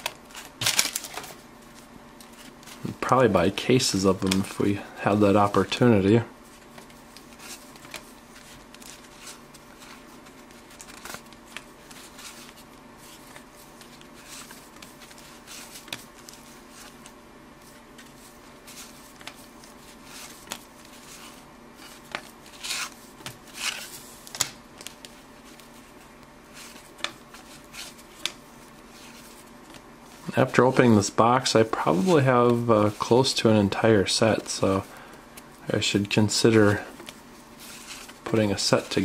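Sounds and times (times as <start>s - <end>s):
cards flipped by hand: 0.0s - 2.9s, 6.6s - 25.8s
faint steady hum: 0.0s - 39.0s.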